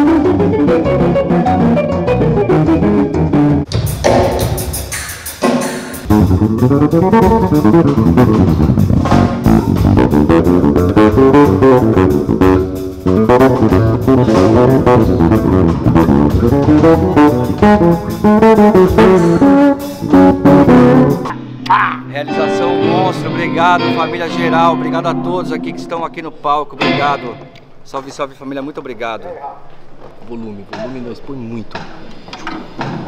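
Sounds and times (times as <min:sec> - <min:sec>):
electric bass guitar: 0:00.0 - 0:03.7, 0:06.0 - 0:26.1, 0:26.8 - 0:27.8
band and drums: 0:03.2 - 0:24.8, 0:26.8 - 0:27.4.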